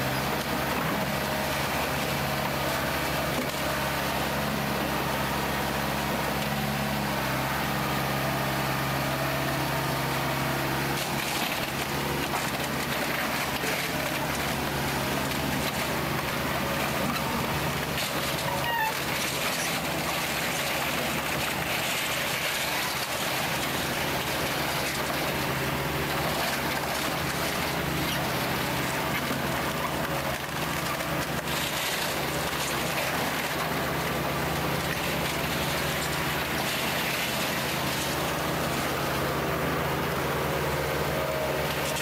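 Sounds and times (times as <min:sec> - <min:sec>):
backhoe engine droning: 0:00.0 - 0:42.0.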